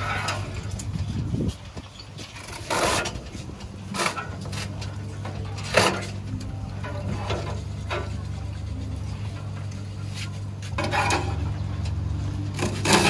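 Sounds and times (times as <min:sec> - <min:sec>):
low steady hum: 0:00.0 - 0:13.0
coconut scraping clunks: 0:12.5 - 0:13.0.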